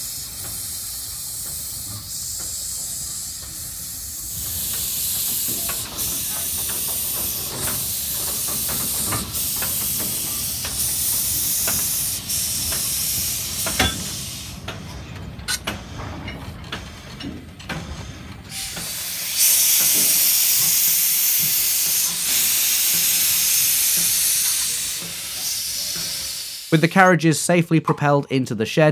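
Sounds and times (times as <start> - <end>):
steam locomotive hissing: 0.0 - 27.6
metal clanks and knocks: 13.6 - 18.5.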